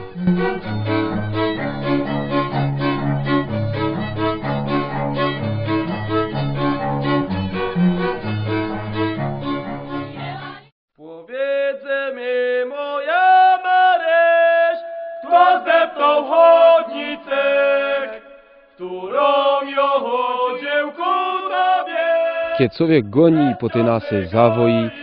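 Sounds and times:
fiddle playing: 0.0s - 10.7s, 23.3s - 25.0s
group singing folk tune: 12.2s - 25.0s.

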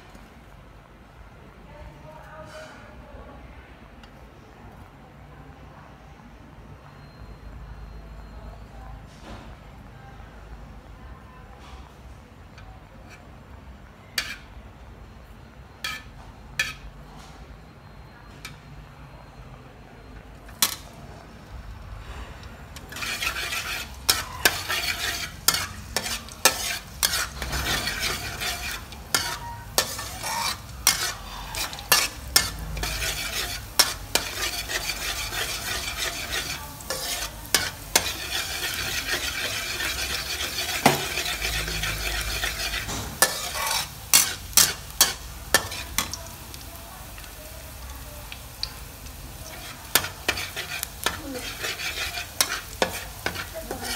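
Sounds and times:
metal spatula scraping wok: 14.0s - 14.6s, 15.8s - 17.0s, 20.5s - 20.9s, 22.0s - 48.0s, 48.6s - 53.9s
garlic sizzling in hot oil: 20.5s - 20.9s, 22.8s - 53.9s.

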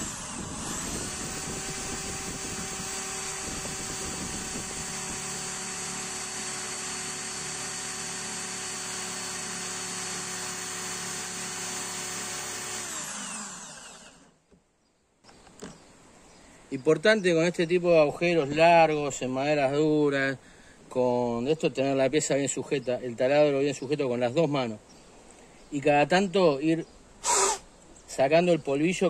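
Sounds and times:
electric drill boring into wood: 0.0s - 14.4s.

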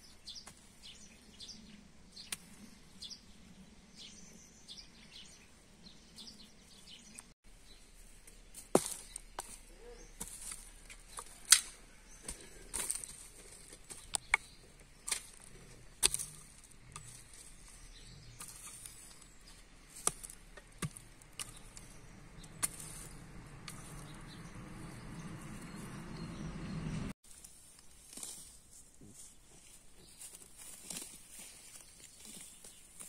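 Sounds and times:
hoe blade striking soil: 8.6s - 25.8s.

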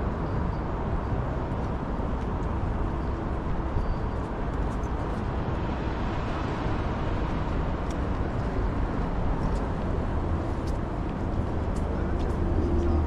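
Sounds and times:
road traffic going by: 0.0s - 13.0s.

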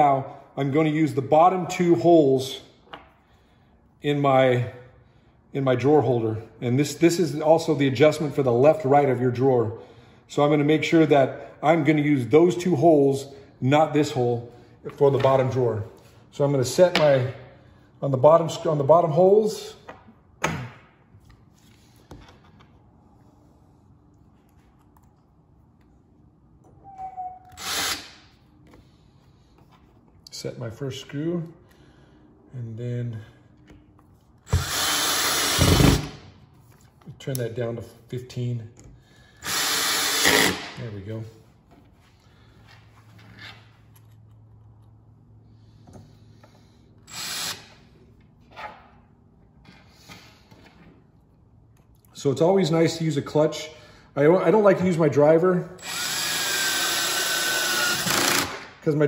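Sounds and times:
cordless drill whine: 27.5s - 28.1s, 34.5s - 36.0s, 47.1s - 47.7s, 55.8s - 58.6s
drill driving screw into metal: 34.5s - 36.2s, 39.4s - 40.7s, 55.8s - 58.7s.

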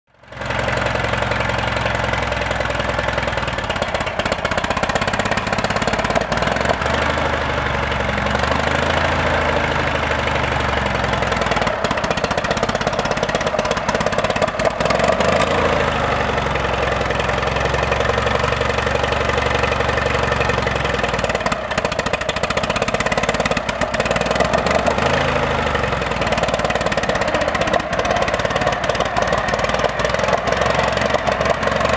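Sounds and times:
tractor engine running: 0.1s - 31.9s.

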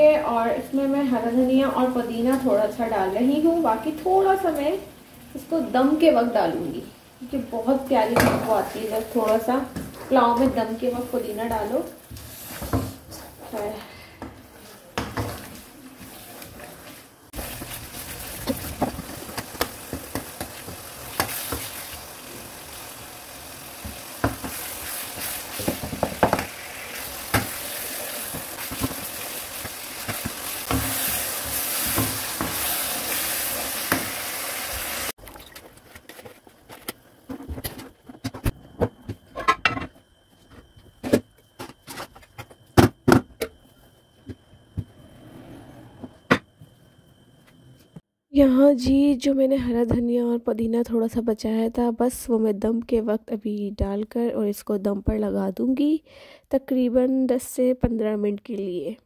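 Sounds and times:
meat sizzling in a wok: 17.3s - 35.2s.

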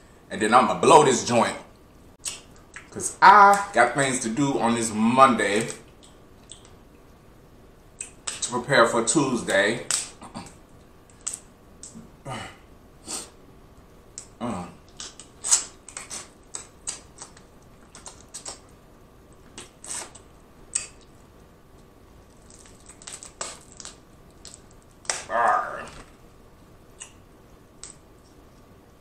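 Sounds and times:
crab shells cracking: 9.8s - 12.0s, 14.1s - 18.7s, 22.2s - 26.2s
eating sounds: 22.3s - 26.2s.

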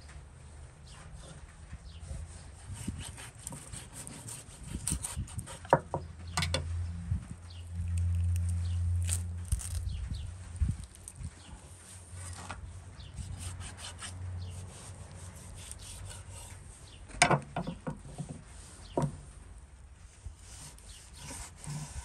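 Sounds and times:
knife sawing through ribs: 2.0s - 5.7s, 13.2s - 16.5s, 20.4s - 22.0s.

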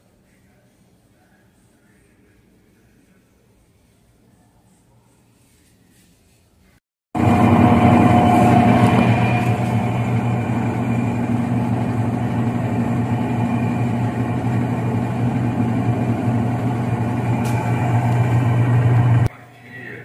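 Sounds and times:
washing machine spinning: 7.2s - 19.3s.

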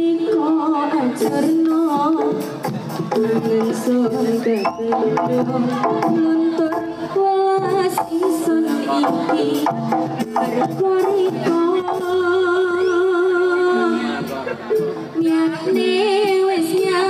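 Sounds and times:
drum and percussion strokes: 1.2s - 12.6s.

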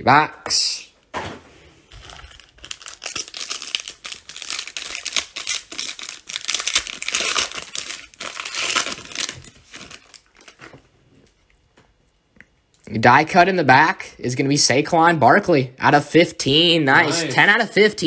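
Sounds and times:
foil wrapper crinkling and tearing: 1.9s - 10.8s.

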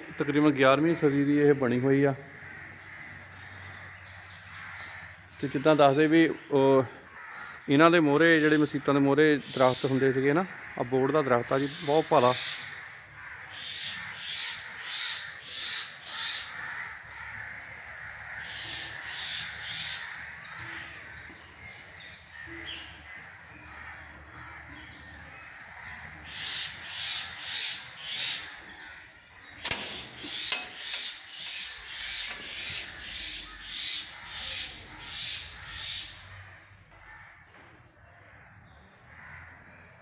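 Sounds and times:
crows cawing: 0.0s - 40.0s
sharp clicks: 29.6s - 32.7s.

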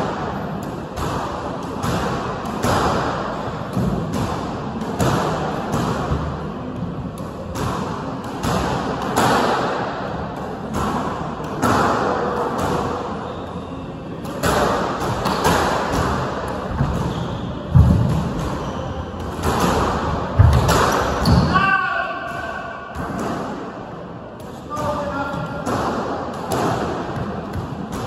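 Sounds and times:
squash balls thudding: 14.2s - 21.6s.

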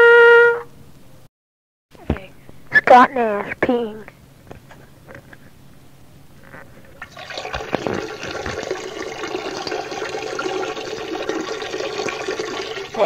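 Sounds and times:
urine splashing into toilet: 7.0s - 13.0s.

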